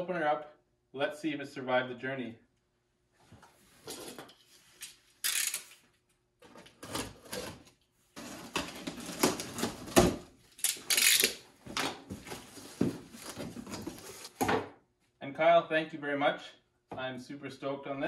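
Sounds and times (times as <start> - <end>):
cardboard box tearing and rustling: 8.2 - 10.3, 12.1 - 14.4.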